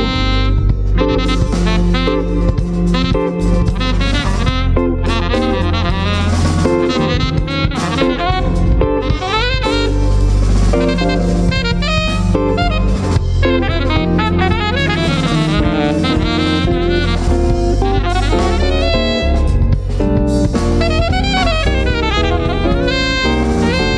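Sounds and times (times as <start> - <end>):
drum kit: 0.0 - 23.9
electric bass: 0.0 - 23.9
electric guitar: 0.0 - 23.9
saxophone melodic lines: 0.0 - 23.9.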